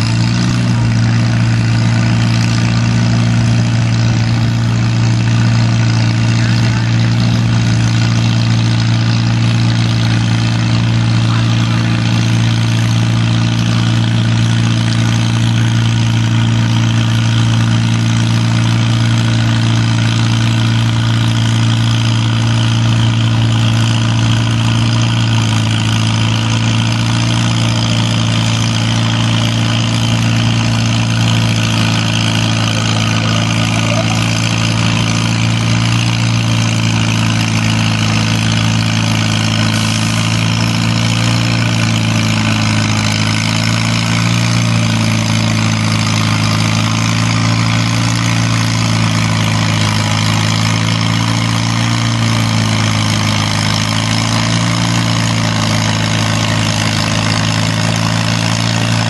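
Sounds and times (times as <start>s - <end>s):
tractor engines idling: 0.0s - 59.0s.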